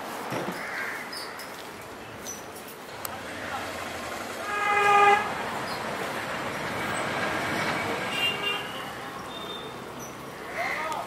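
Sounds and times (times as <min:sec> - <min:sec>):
traffic noise: 0:00.0 - 0:11.0
vehicle horn: 0:04.4 - 0:05.7, 0:07.8 - 0:09.7.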